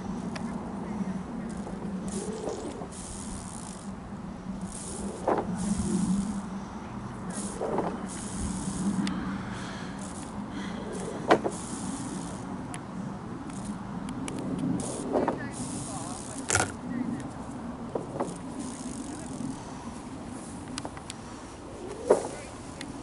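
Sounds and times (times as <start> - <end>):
jet rumble with hiss: 0.0 - 23.0
sharp clicks: 11.0 - 17.4.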